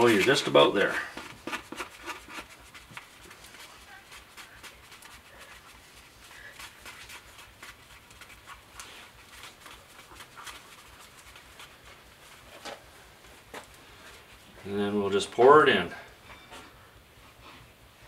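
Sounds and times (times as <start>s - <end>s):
stick scraping in paper bowl: 0.0s - 12.6s.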